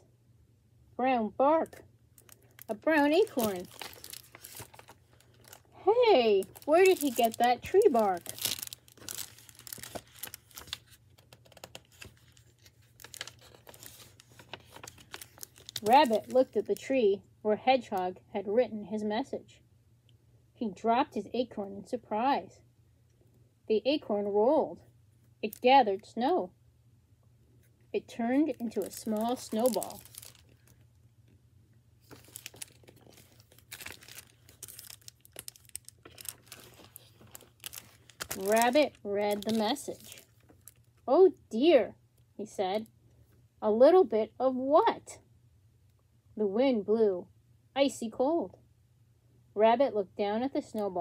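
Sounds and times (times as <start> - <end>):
low steady hum: 0.0 - 51.0
book pages turning: 2.2 - 16.8, 28.4 - 30.8, 32.0 - 40.8.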